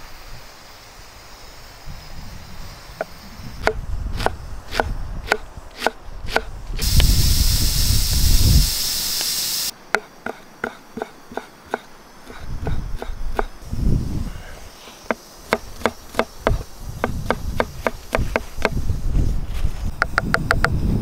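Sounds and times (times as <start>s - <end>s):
steam hissing from pressure valve: 0.0s - 9.8s
knife chopping on wooden board: 3.6s - 6.5s, 9.9s - 13.6s, 15.1s - 18.8s.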